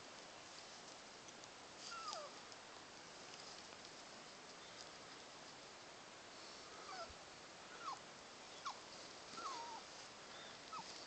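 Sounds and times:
small dog whimpering: 0:01.9 - 0:02.4, 0:06.9 - 0:07.1, 0:07.8 - 0:09.9.

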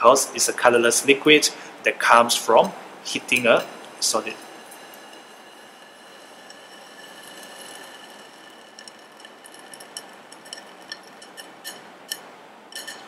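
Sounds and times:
bunsen burner hissing: 0:00.9 - 0:12.2
crystals crackling and popping: 0:03.3 - 0:11.9.

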